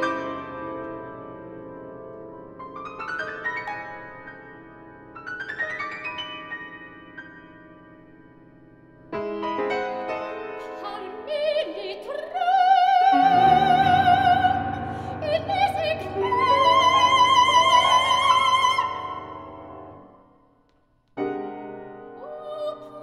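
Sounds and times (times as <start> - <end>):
grand piano: 0.0 - 23.0
soprano singing with vibrato: 10.6 - 19.5, 22.2 - 23.0.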